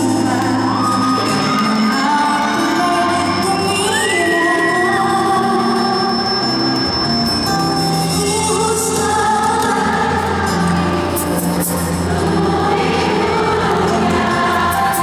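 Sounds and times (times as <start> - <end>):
woman singing into microphone: 0.0 - 6.5, 8.0 - 15.0
live band playing pop ballad: 0.0 - 15.0.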